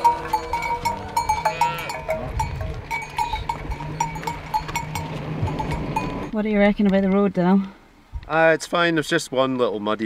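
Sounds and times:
cowbells clanking: 0:00.0 - 0:06.4.

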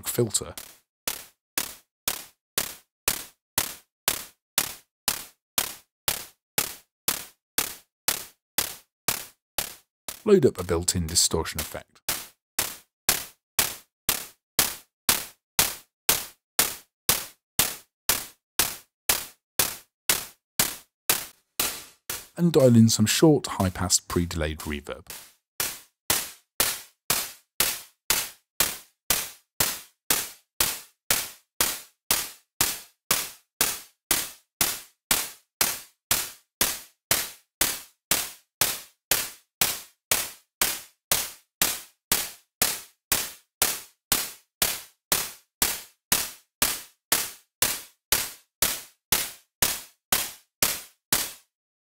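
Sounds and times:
distorted synthesized handclap: 0:00.0 - 0:01.2, 0:10.1 - 0:14.8, 0:20.6 - 0:28.3.

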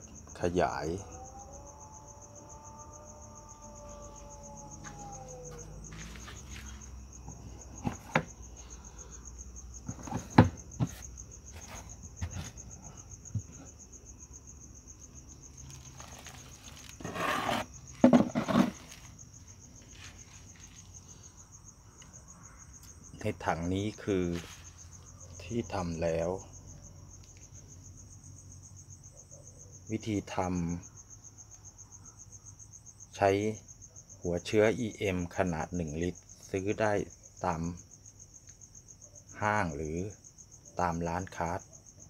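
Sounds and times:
crickets chirring: 0:00.0 - 0:42.0
scraping: 0:09.8 - 0:12.6, 0:15.7 - 0:19.2
plastic bin lid knocking: 0:09.9 - 0:11.0, 0:18.0 - 0:18.8.

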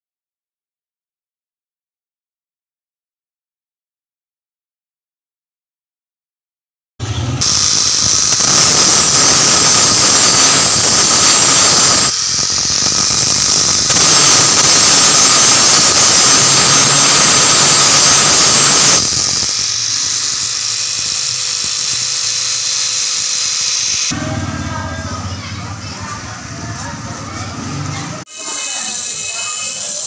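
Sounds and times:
angle grinder grinding metal: 0:07.4 - 0:24.2, 0:28.3 - 0:30.0.

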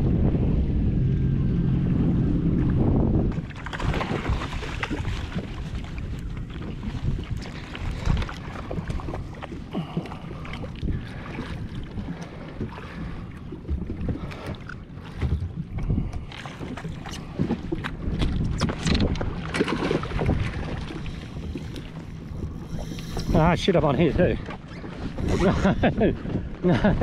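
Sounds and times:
wind buffeting microphone: 0:00.0 - 0:27.0
water slapping against hull: 0:02.0 - 0:27.0.

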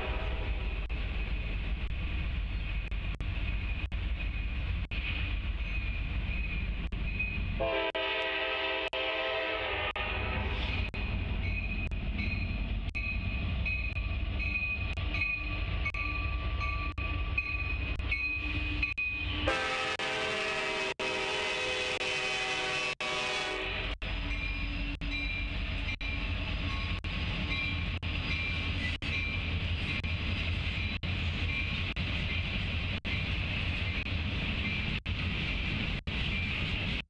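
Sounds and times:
locomotive air horn: 0:00.0 - 0:00.6, 0:07.6 - 0:10.6, 0:19.4 - 0:24.0.

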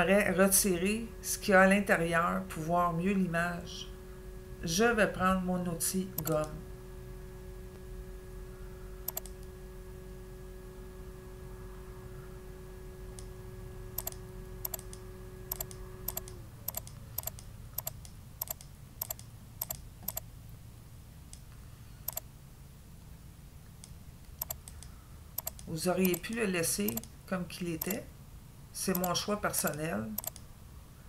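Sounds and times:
faint tone sliding down: 0:00.0 - 0:17.3
low electrical hum: 0:00.0 - 0:31.0
mouse button clicking: 0:09.1 - 0:09.4, 0:14.0 - 0:20.2.

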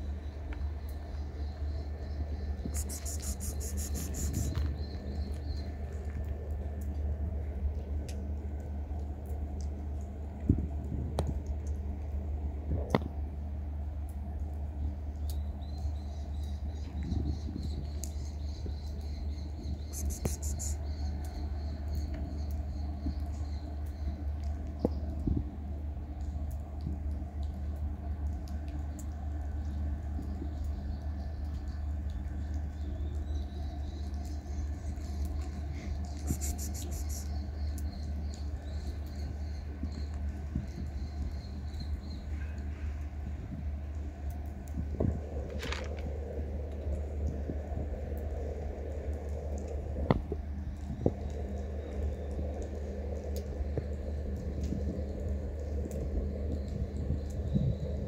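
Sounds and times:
low street rumble: 0:00.0 - 0:58.0
faint ticks: 0:00.2 - 0:12.0, 0:15.2 - 0:25.4, 0:26.1 - 0:42.7.

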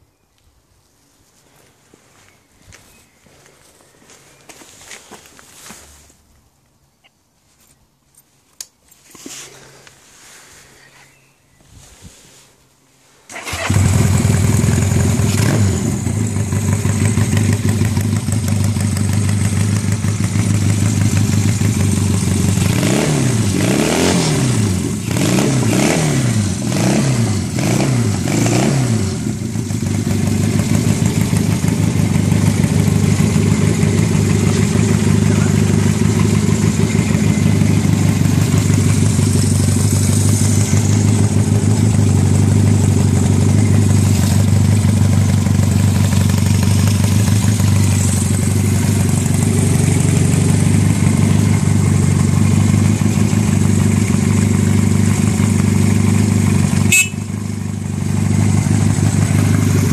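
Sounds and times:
motorcycle engine idling: 0:13.3 - 0:23.6, 0:24.5 - 0:59.9
motorcycle engine revving: 0:13.3 - 0:59.9.

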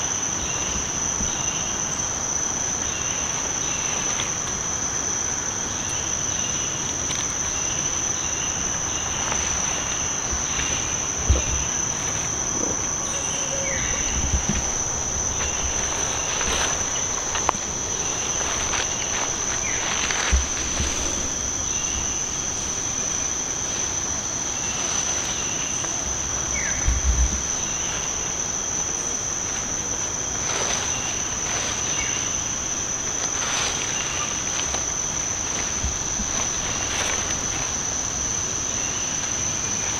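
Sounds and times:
insects droning: 0:00.0 - 0:39.9
low thumps: 0:09.3 - 0:23.4.

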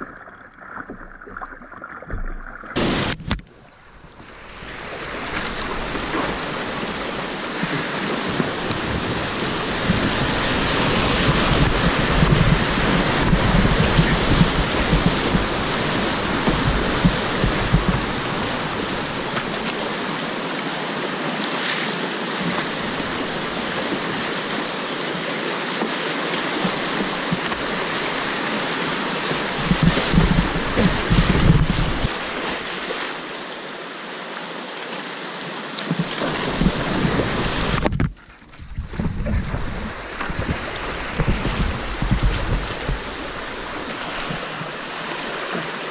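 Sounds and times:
wind buffeting on microphone: 0:02.8 - 0:19.9, 0:26.5 - 0:32.6, 0:36.0 - 0:45.5
whitewater rapids rushing: 0:03.8 - 0:38.0, 0:39.3 - 0:45.9.

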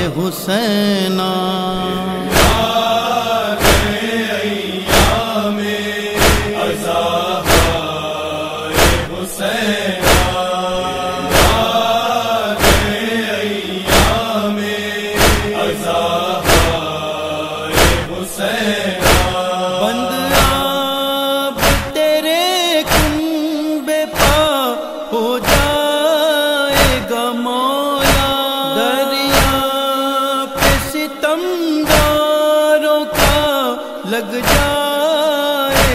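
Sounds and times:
low drone: 0:00.0 - 0:21.9
person chanting a lament: 0:00.0 - 0:35.9
sharp beat: 0:02.3 - 0:02.8, 0:03.6 - 0:04.0, 0:04.9 - 0:05.2, 0:06.2 - 0:06.8, 0:07.4 - 0:07.9, 0:08.7 - 0:09.1, 0:10.0 - 0:10.5, 0:11.2 - 0:12.0, 0:12.6 - 0:13.0, 0:13.9 - 0:14.3, 0:15.2 - 0:16.9, 0:17.7 - 0:18.1, 0:19.0 - 0:19.4, 0:20.3 - 0:20.8, 0:21.6 - 0:22.0, 0:22.9 - 0:23.2, 0:30.6 - 0:31.0, 0:33.2 - 0:33.5.

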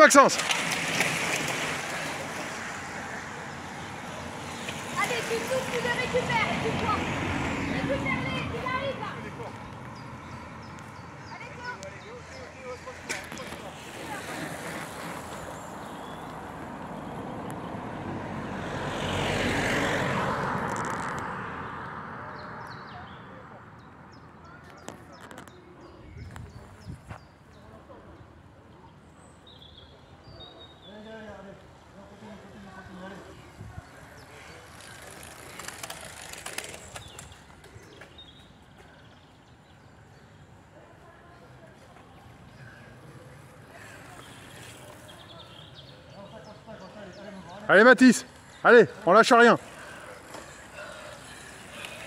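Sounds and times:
car driving past: 0:13.7 - 0:22.8
bicycle freewheel ticking: 0:34.7 - 0:37.3.

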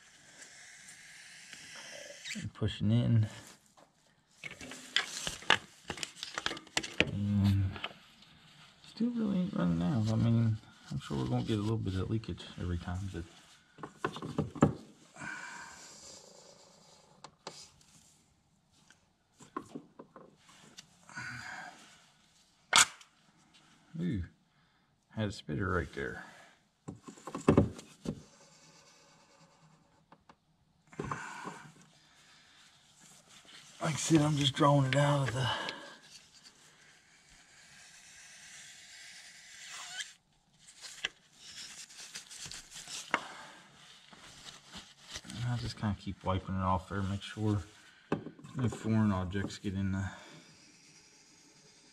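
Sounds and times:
soft hissing: 0:00.0 - 0:02.4
rubber-gloved hands rustling: 0:39.9 - 0:46.1.

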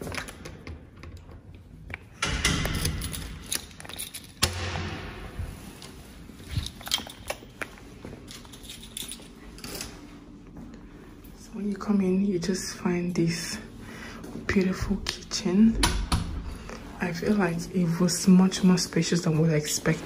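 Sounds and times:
keys jangling: 0:02.6 - 0:04.5, 0:06.4 - 0:09.9.

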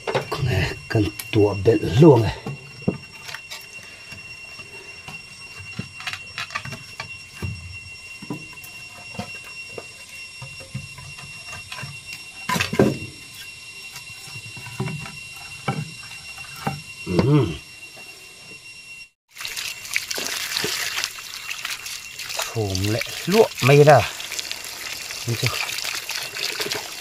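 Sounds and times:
faint high tone: 0:17.1 - 0:17.6.

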